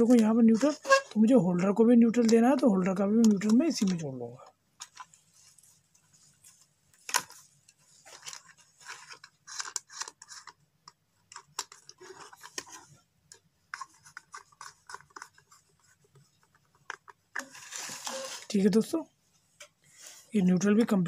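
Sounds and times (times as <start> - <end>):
wires scratching and rubbing: 0.0 - 2.6.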